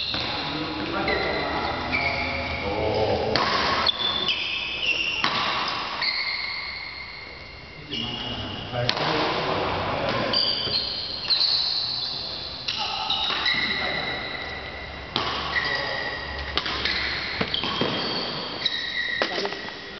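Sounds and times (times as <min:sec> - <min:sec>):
shoes squeaking on court floor: 0:00.0 - 0:03.2, 0:03.8 - 0:08.8, 0:10.0 - 0:19.9
racket striking shuttlecock: 0:03.3 - 0:04.4, 0:05.1 - 0:06.1, 0:08.9 - 0:09.3, 0:12.7 - 0:13.8, 0:15.1 - 0:19.8.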